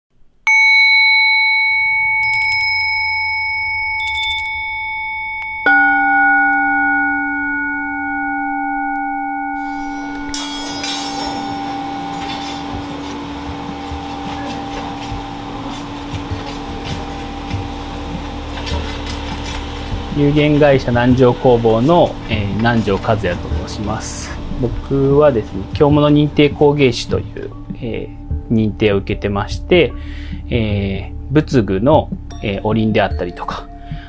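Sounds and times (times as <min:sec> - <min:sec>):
lower-pitched bowl bell ringing: 0:00.5 - 0:22.4, 0:32.3 - 0:34.0
bowl bell ringing: 0:00.5 - 0:28.3, 0:32.3 - 0:34.0
small high bells jingling: 0:00.6 - 0:08.6, 0:09.6 - 0:15.6
furnace fire rushing and crackling: 0:10.6 - 0:27.5.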